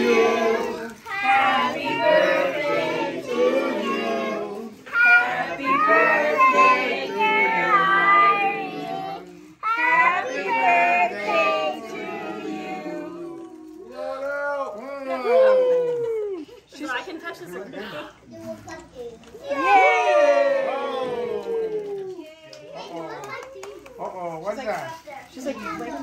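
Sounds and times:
children singing: 0.0s - 13.8s.

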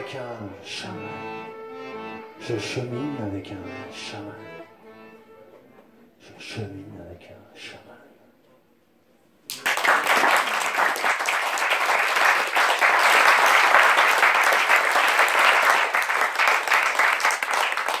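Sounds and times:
audience applauding: 9.5s - 18.0s.

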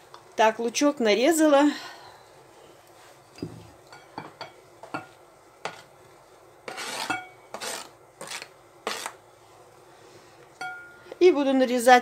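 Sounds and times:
knife scraping cutting board: 6.7s - 9.2s.

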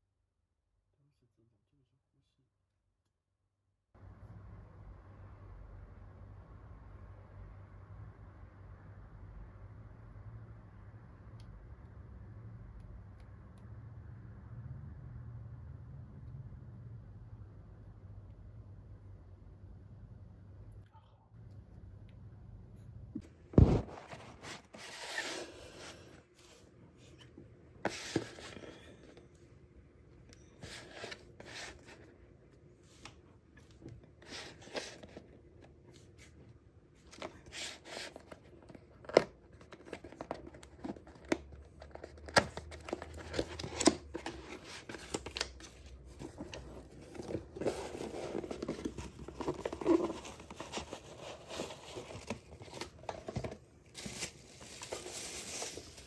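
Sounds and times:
cardboard boxes being opened: 23.6s - 26.1s, 27.9s - 29.1s, 39.0s - 56.0s
plastic wrapping crinkling: 54.0s - 56.0s.

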